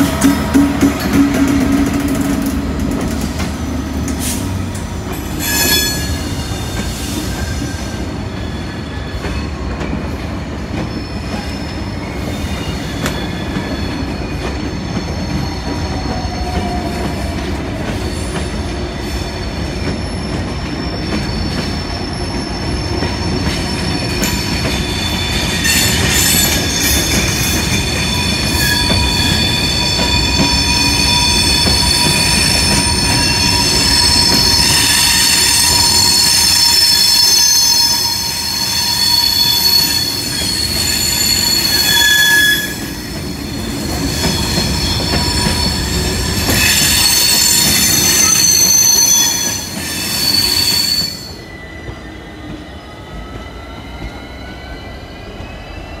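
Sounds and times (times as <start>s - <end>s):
train wheels rumbling on rail: 0.0s - 56.0s
high-pitched wheel squeal: 5.2s - 9.6s, 18.0s - 56.0s.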